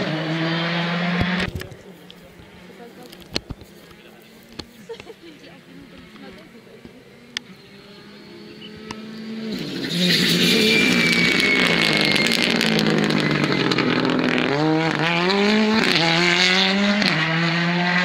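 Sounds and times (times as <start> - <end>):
rally car engine at full throttle: 0.0 - 18.0
gear upshifts: 5.9 - 16.2.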